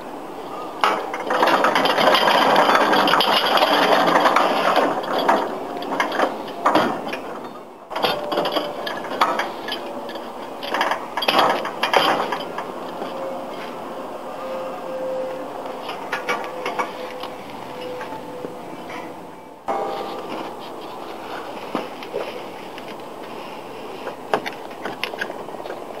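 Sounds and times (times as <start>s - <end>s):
metal frame rattling on casters: 0.8s - 14.2s, 14.9s - 26.0s
sharp metal clanks: 19.7s - 22.9s.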